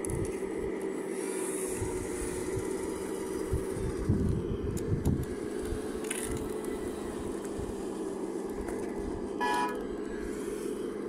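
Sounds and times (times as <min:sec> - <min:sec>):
model excavator motor and pump: 0:00.0 - 0:11.0
short horn toot: 0:09.4 - 0:09.8.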